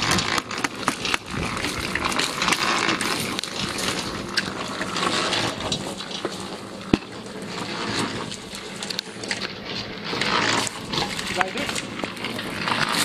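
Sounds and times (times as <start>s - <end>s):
scraping noise: 0.0s - 6.5s, 9.6s - 13.0s
concrete mixer humming: 0.0s - 13.0s.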